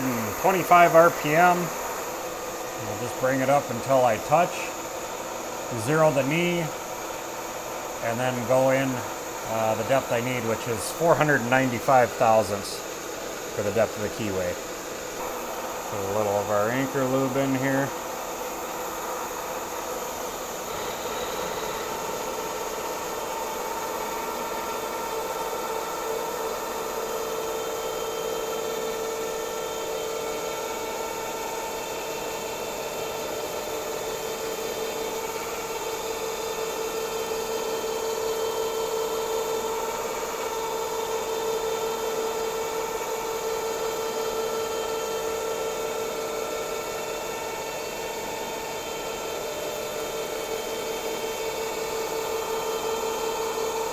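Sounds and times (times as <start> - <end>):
milling machine cutting steel: 0.0 - 53.9.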